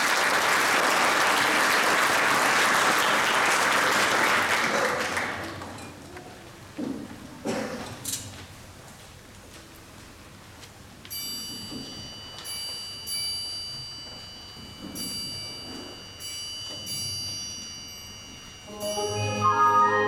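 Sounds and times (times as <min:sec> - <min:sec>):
bells ringing: 0:11.1 - 0:20.0
orchestra playing: 0:18.7 - 0:20.0.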